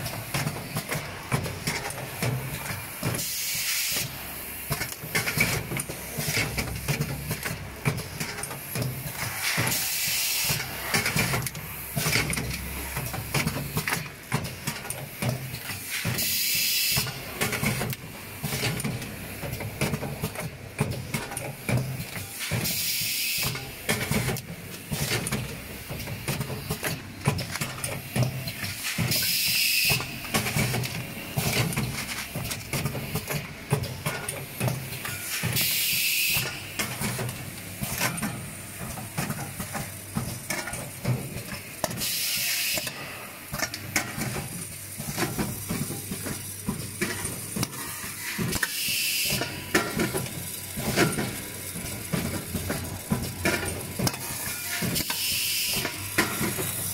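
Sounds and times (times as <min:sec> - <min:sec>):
packing machine clicking and clattering: 0:00.0 - 0:56.9
compressed air hiss: 0:03.2 - 0:04.3, 0:09.2 - 0:12.1.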